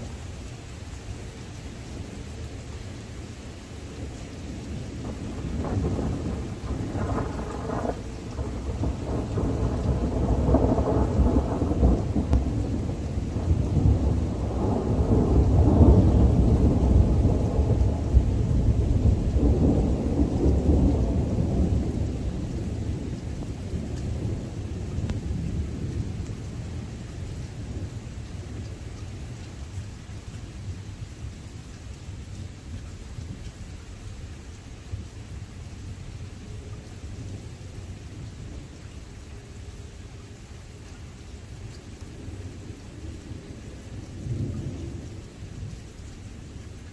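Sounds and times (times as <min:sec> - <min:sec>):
rain falling: 0:00.0 - 0:46.9
rolling thunder rumble: 0:04.0 - 0:31.1, 0:42.0 - 0:46.9.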